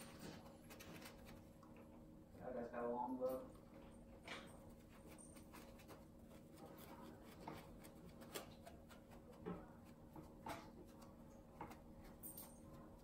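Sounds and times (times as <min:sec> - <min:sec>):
sponge dabbing on wood: 0:04.5 - 0:13.0.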